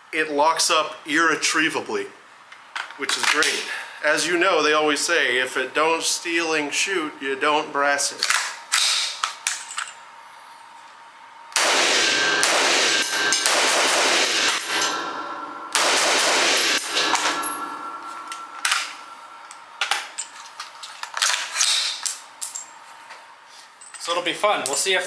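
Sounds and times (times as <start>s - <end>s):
rifle shots echoing indoors: 11.6s - 19.3s.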